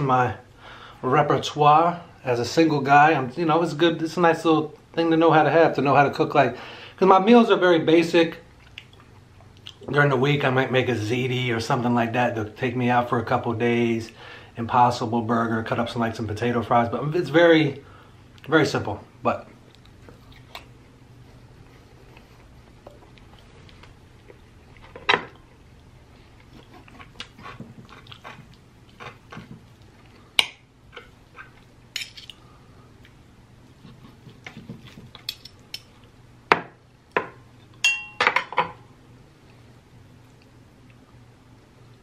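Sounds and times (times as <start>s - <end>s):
chewing: 8.6s - 9.8s, 19.6s - 20.7s, 21.5s - 30.3s
cutlery clinking on a plate: 37.8s - 38.8s.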